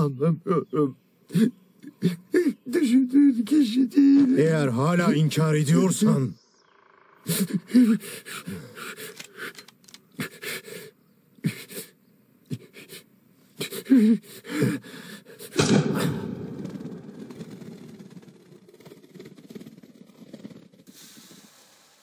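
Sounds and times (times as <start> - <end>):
person gasping and groaning: 1.3 - 2.7, 7.3 - 13.0, 13.6 - 16.3.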